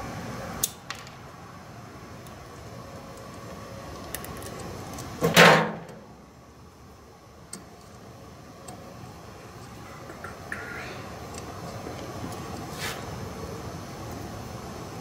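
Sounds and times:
background noise: 0.0 - 15.0.

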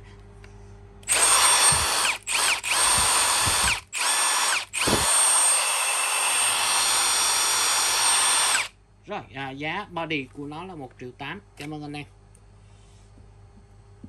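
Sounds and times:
impact driver motor whining: 1.0 - 8.7.

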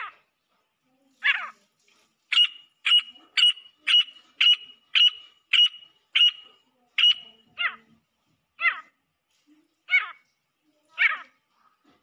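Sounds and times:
francolin calling: 2.3 - 7.8.

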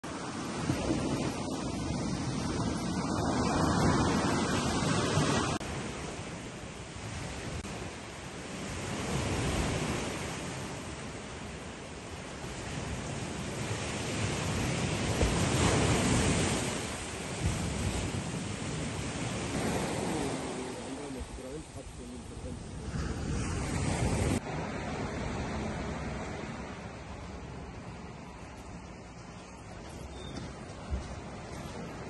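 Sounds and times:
surf washing onto beach: 0.0 - 32.0
wind on microphone: 0.2 - 7.9, 12.4 - 26.9.

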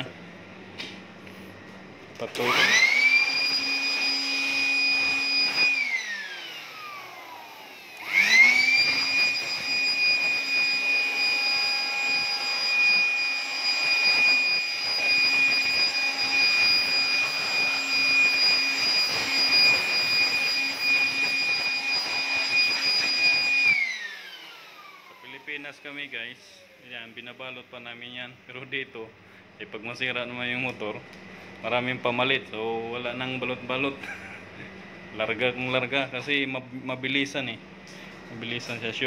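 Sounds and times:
electric air blower whining: 0.0 - 28.7, 30.4 - 39.0.

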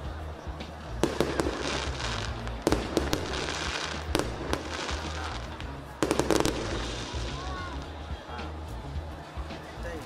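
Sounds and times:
continuous hiss: 0.0 - 10.0
firecracker bangs: 1.0 - 7.4.

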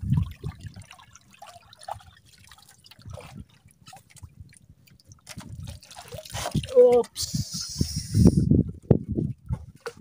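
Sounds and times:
water dripping and trickling: 0.0 - 7.2.

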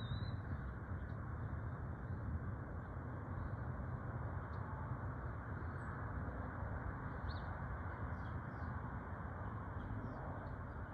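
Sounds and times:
faint high bird chirps: 0.0 - 0.4.

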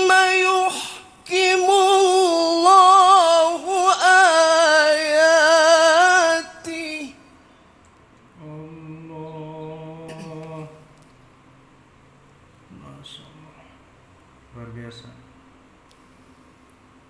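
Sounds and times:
man chanting into a microphone: 0.0 - 7.3.

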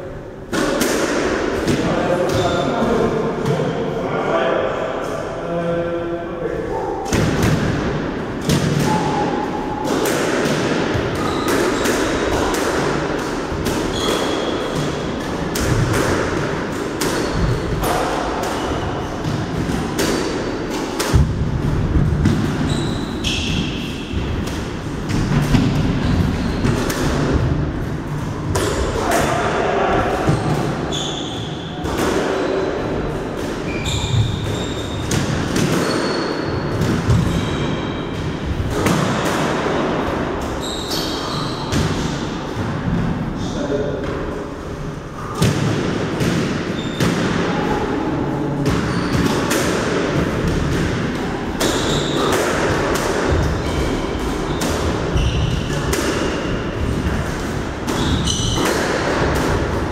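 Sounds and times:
squash ball smacks: 9.8 - 22.7, 48.6 - 56.4
shoe squeaks: 11.2 - 12.4, 13.9 - 14.8, 22.6 - 24.1, 26.0 - 26.8, 30.3 - 31.8, 33.6 - 35.1, 35.7 - 38.1, 40.6 - 41.7, 46.8 - 47.6, 48.8 - 49.2, 51.6 - 52.3, 53.5 - 55.7, 58.0 - 58.6.

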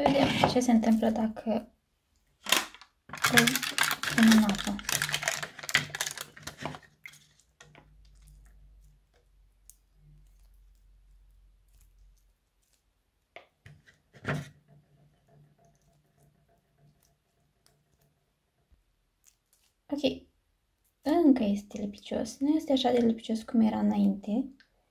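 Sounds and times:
slime squishing: 2.2 - 14.2, 14.8 - 20.0.

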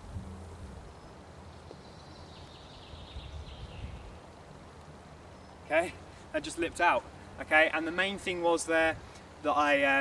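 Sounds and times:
low wind rumble: 0.0 - 5.4
faint bird twittering: 0.8 - 4.3.

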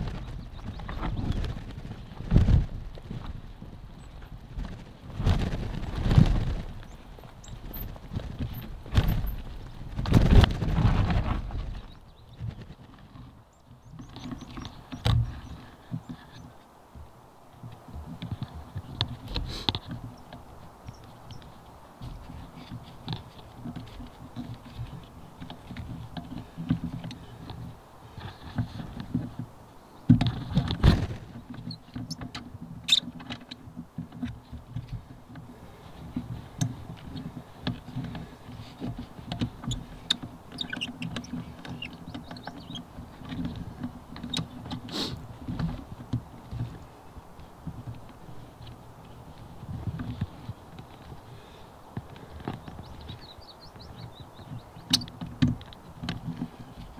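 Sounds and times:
bike clicking and rattling: 0.0 - 56.9
heavy bike jolt: 4.6 - 12.6, 30.1 - 33.6.

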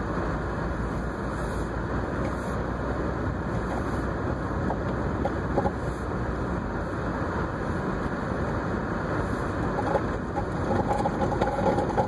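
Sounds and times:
car cabin rumble on snow: 0.0 - 12.0.

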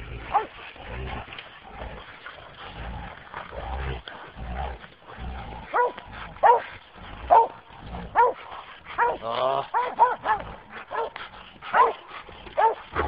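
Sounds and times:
dogs barking: 0.0 - 0.6, 5.6 - 13.0
low rumbling scuffle: 0.0 - 13.0.

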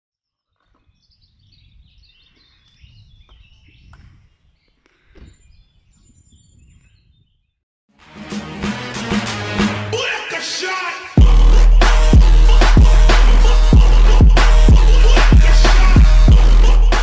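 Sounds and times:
birds chirping: 0.2 - 7.6
wind rumble on microphone: 0.6 - 7.6
intro music with heavy beat: 8.0 - 10.2, 11.2 - 17.0.

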